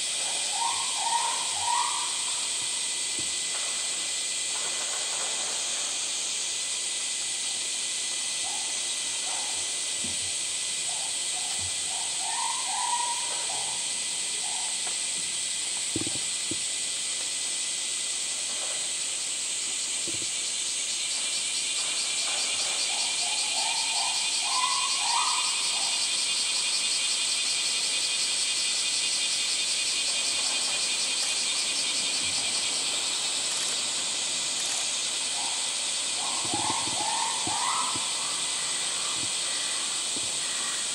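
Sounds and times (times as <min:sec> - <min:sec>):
cicadas buzzing: 0:00.0 - 0:40.9
short chirping calls: 0:36.2 - 0:39.5.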